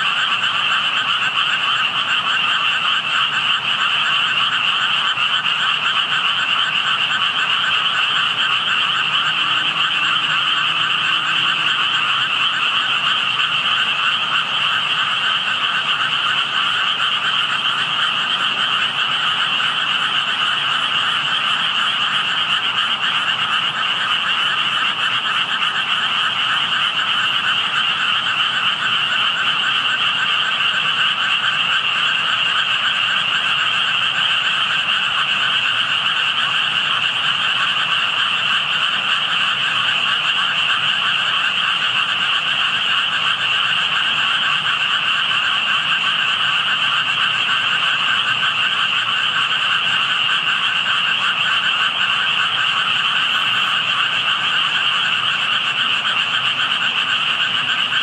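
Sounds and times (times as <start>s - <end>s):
chorus of frogs calling: 0.0s - 58.0s.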